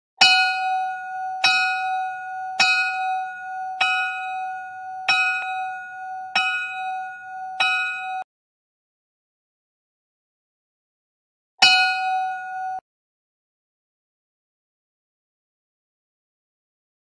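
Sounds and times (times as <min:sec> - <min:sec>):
bell ringing: 0:00.2 - 0:08.3, 0:11.6 - 0:12.8.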